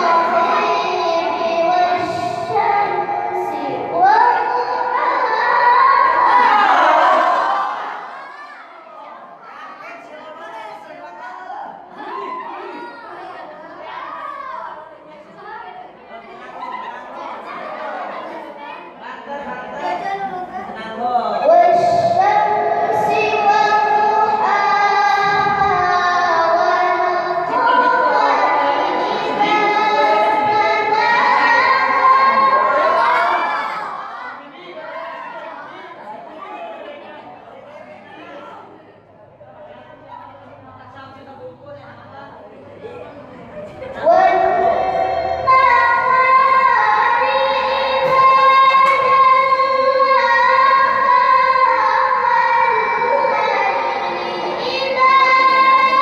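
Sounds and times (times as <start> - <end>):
girl reciting melodically: 0.0 - 8.8, 11.7 - 35.0, 43.4 - 56.0.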